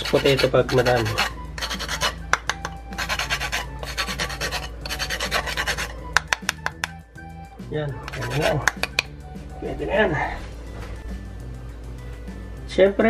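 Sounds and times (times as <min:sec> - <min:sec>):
nutmeg rasping on metal grater: 0:00.0 - 0:06.7, 0:08.0 - 0:09.0.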